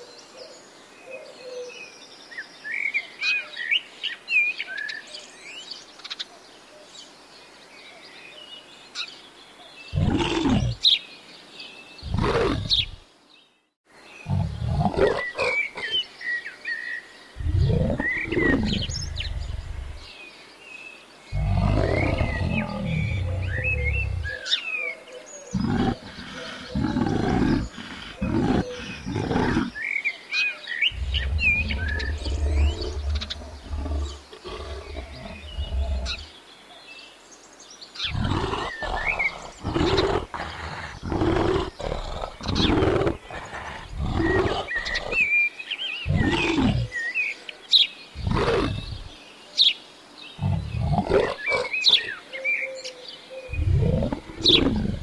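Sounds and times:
faint birds chirping: 0:00.0 - 0:55.0
bears grunting and moaning: 0:09.9 - 0:10.8, 0:12.0 - 0:13.0, 0:14.2 - 0:16.0, 0:17.4 - 0:20.1, 0:21.3 - 0:24.5, 0:25.5 - 0:29.9, 0:30.9 - 0:36.3, 0:38.0 - 0:45.3, 0:46.1 - 0:47.0, 0:48.2 - 0:49.1, 0:50.4 - 0:52.2, 0:53.5 - 0:55.0.

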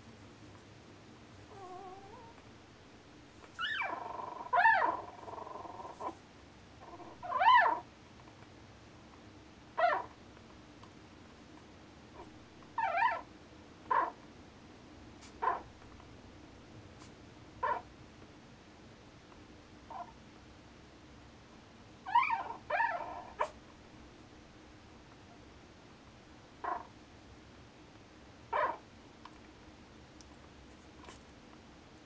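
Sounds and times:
puppies squeaking and whimpering: 0:03.5 - 0:06.2, 0:06.9 - 0:07.8, 0:22.1 - 0:23.6.

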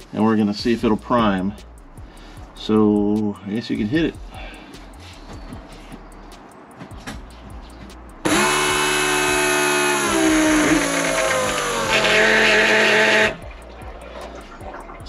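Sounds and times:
electric fuel pump whine: 0:08.2 - 0:13.5.

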